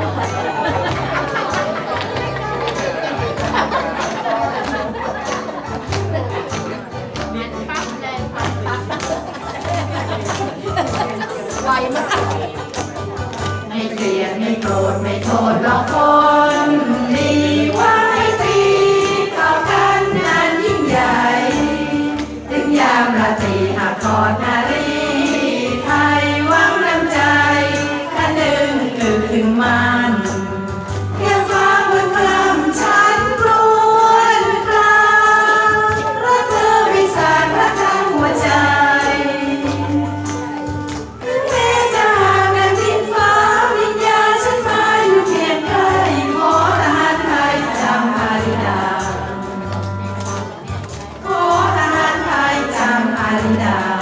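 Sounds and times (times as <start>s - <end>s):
woman singing into microphone: 13.7s - 40.4s, 51.3s - 54.0s.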